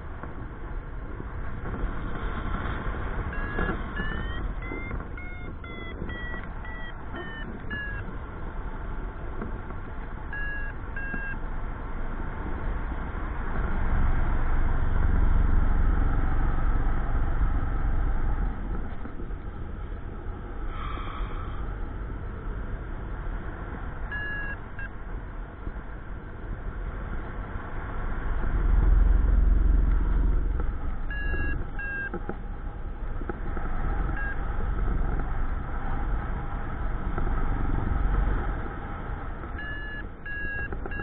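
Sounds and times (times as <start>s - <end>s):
variometer beeping: 3.3s - 8.2s, 10.2s - 11.4s, 24.0s - 25.0s, 30.4s - 35.3s, 39.3s - 41.0s.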